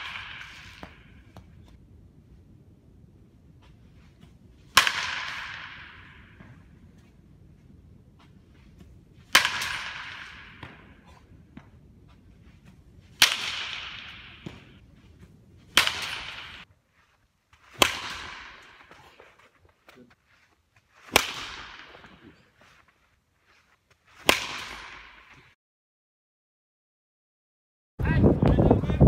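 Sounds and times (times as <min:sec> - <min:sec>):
baseball bat cracks with echo: 0:00.0 - 0:01.2, 0:04.7 - 0:06.7, 0:09.3 - 0:11.7, 0:13.2 - 0:14.8, 0:15.7 - 0:16.6, 0:17.8 - 0:19.0, 0:21.0 - 0:22.2, 0:24.2 - 0:25.3.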